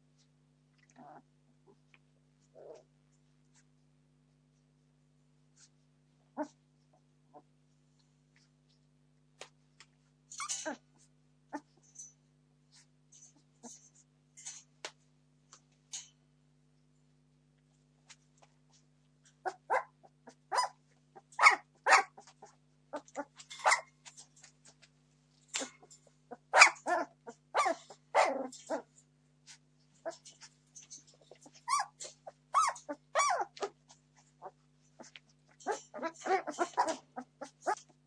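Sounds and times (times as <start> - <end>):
puppies yelping and squealing: 31.2 - 33.8, 34.4 - 37.9.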